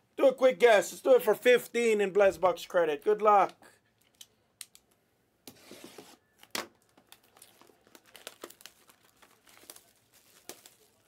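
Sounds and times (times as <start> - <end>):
plastic wrap tearing and crinkling: 6.4 - 11.0.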